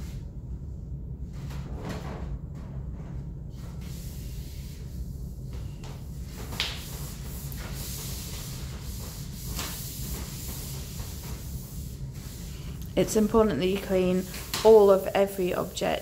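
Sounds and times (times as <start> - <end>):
steady low hum: 0.0 - 16.0
wipe rubbing on trolley panel: 6.2 - 15.8.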